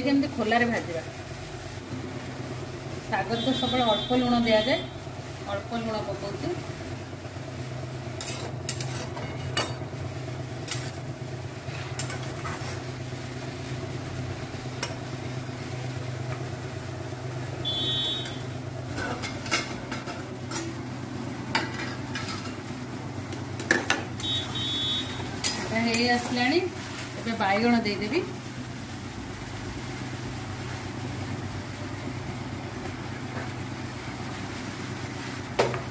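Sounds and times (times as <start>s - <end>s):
greens frying in a pan: 0.0s - 35.9s
metal spatula scraping pan: 8.2s - 9.8s.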